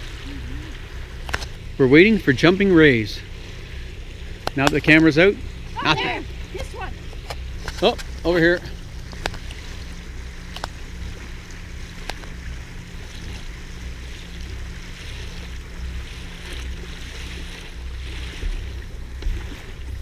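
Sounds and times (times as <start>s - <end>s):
steady low hum: 0.0s - 20.0s
water rushing past hull: 0.0s - 20.0s
faint clicks: 12.0s - 12.4s.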